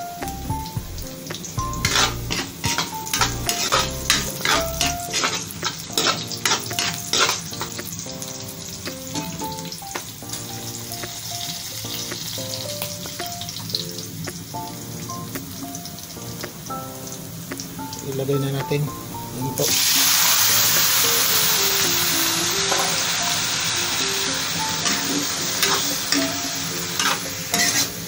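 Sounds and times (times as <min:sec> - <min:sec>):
aromatics sizzling in oil: 0:00.0 - 0:28.0
background music: 0:00.0 - 0:28.0
metal ladle scraping a wok: 0:01.8 - 0:07.8, 0:24.8 - 0:28.0.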